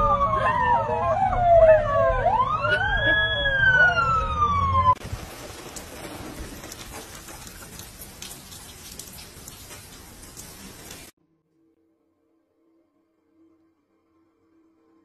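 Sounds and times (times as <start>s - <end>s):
siren wailing: 0.0s - 5.0s
rain hissing: 5.0s - 11.2s.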